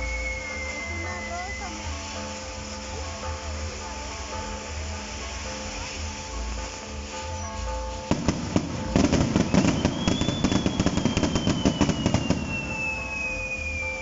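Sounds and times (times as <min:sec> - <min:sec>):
firework whistle sliding down: 0:00.0 - 0:02.6, 0:07.2 - 0:14.0
fireworks banging and crackling: 0:00.0 - 0:14.0.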